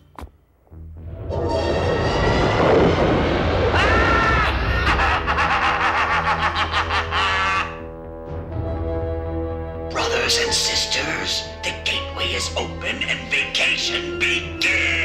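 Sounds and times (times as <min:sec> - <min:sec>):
low drone: 0:00.7 - 0:07.4
rushing sound effect: 0:01.0 - 0:06.0
cartoon villain laughing: 0:04.4 - 0:07.9.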